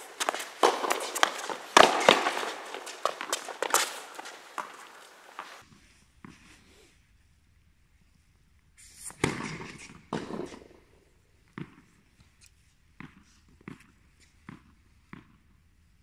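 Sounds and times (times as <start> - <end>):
tennis racket hitting ball: 0.0 - 5.6, 9.2 - 10.7.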